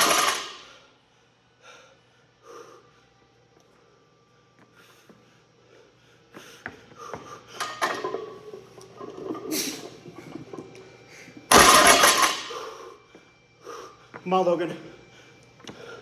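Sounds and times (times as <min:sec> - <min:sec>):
barbell dropping on platform: 0:00.0 - 0:00.6, 0:11.5 - 0:12.5.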